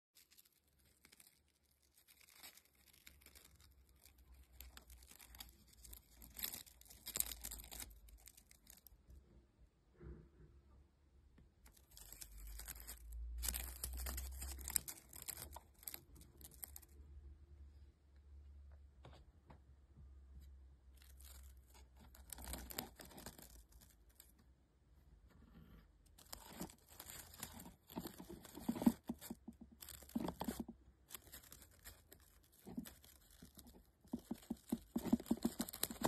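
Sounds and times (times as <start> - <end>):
insect chewing crunch: 26.2 - 36.0.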